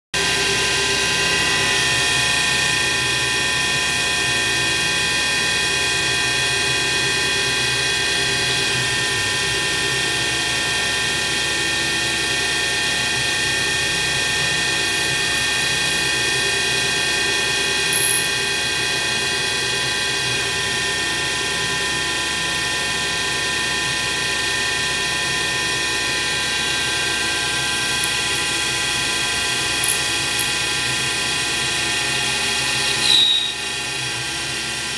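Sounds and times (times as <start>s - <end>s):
milling machine whining drone: 0.2s - 34.9s.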